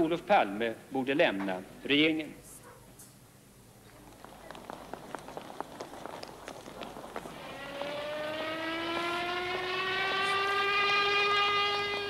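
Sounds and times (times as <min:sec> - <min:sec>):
film soundtrack crackle: 0:03.9 - 0:10.3
siren wailing: 0:07.3 - 0:12.0.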